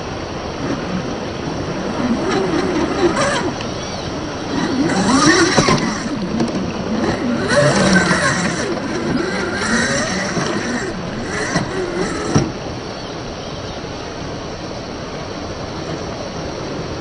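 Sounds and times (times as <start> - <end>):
rushing water: 0.0 - 17.0
electric motor whining: 0.6 - 12.9.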